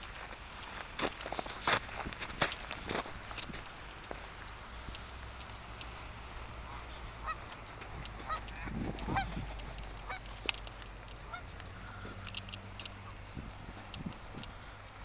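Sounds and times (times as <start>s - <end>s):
geese honking: 6.0s - 13.3s.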